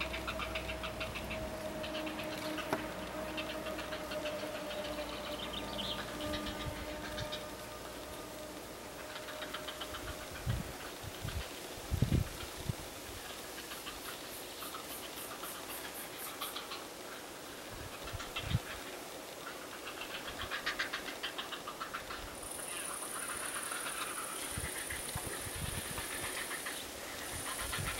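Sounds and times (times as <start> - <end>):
heron chicks ticking begging calls: 0.0 - 7.6.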